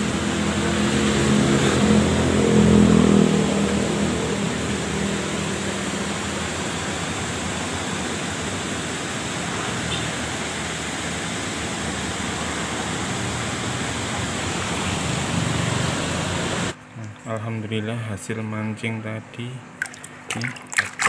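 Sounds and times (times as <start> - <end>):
stream rushing: 0.0 - 16.8.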